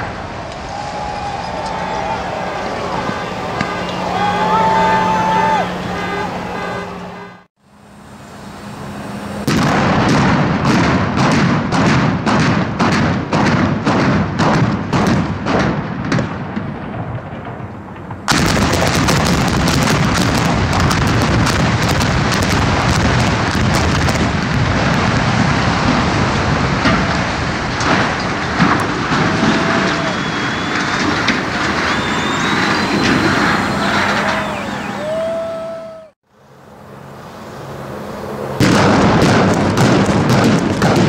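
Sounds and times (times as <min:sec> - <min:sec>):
explosive detonations: 0:09.4 - 0:35.0, 0:38.6 - 0:41.0
building collapsing rumble: 0:15.0 - 0:35.4.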